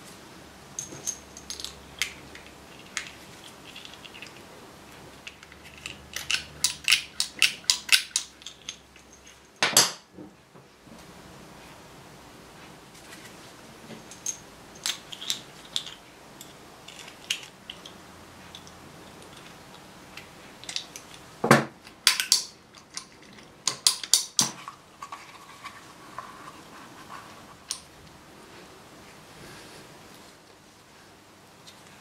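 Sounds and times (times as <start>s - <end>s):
small metal parts clinking: 0.8s - 4.4s, 5.2s - 10.0s, 14.0s - 21.2s.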